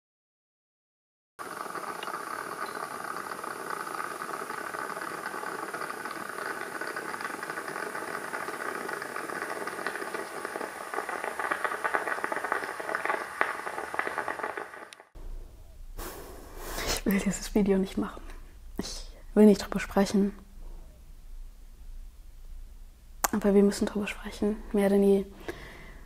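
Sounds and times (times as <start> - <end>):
moka pot hissing and sputtering: 1.4 - 15.2.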